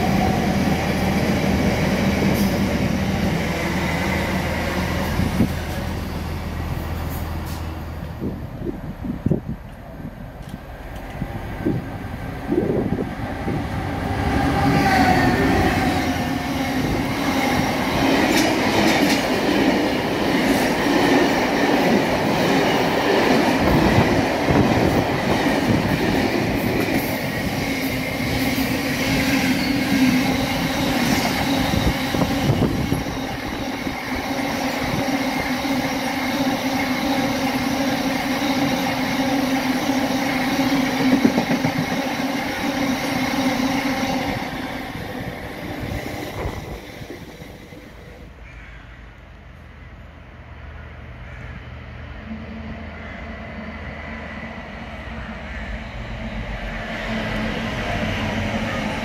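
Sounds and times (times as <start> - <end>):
diesel locomotives passing: 0.0 - 59.0
low drone of train wheels: 0.0 - 59.0.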